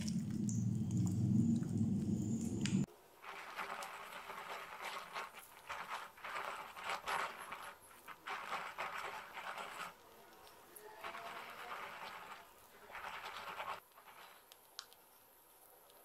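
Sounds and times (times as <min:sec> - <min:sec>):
piping bag squishing and rustling: 0:03.2 - 0:16.0.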